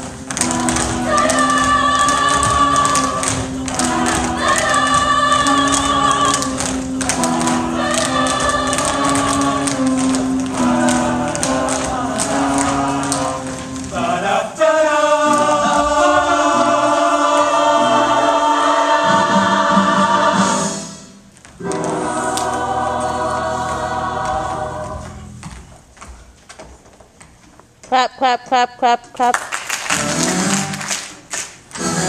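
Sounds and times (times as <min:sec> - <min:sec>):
choir singing with music: 0:00.0 - 0:25.4, 0:31.8 - 0:32.0.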